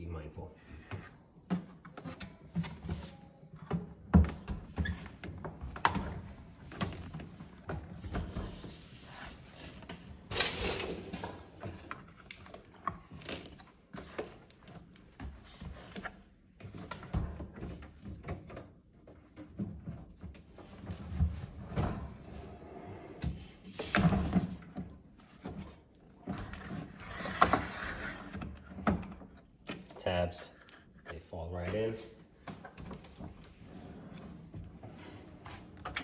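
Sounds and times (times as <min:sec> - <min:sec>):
dishwasher drawer clattering: 0:10.3 - 0:11.7
plastic knocks and scrapes: 0:23.1 - 0:30.0.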